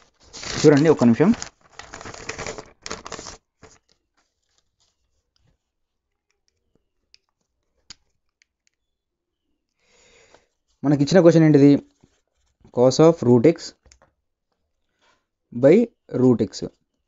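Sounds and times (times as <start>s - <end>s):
paper rustling and crinkling: 0.0s - 5.8s, 11.8s - 12.8s.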